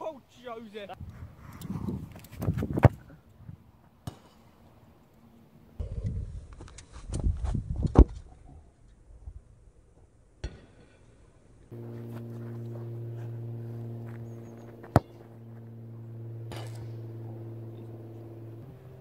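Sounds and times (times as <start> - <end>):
steady low pitched hum: 11.3 - 19.0
football kicked on grass: 11.7 - 15.8.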